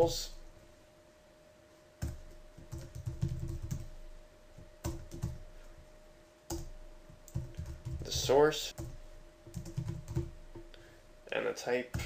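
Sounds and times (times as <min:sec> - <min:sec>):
computer keyboard typing: 0:02.0 - 0:03.9, 0:04.6 - 0:05.4, 0:06.5 - 0:10.7.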